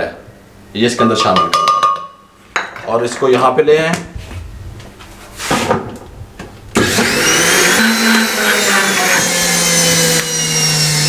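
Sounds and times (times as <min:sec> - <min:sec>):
electric blender motor whine: 0:06.7 - 0:11.0.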